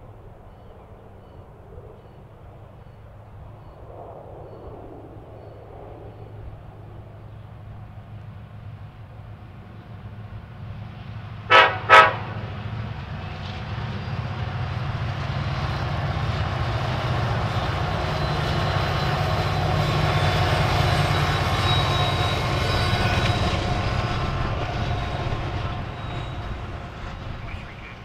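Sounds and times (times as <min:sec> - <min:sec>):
train rumble: 0:03.6 - 0:28.0
locomotive horn toots: 0:11.5 - 0:12.5.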